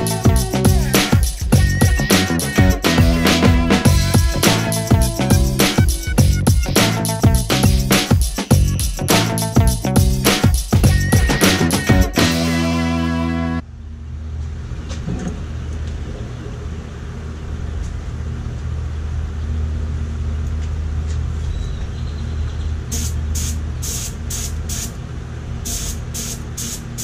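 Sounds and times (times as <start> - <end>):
steady low hum: 0.0 - 21.5
spray gun short hisses: 22.9 - 25.0, 25.6 - 27.0.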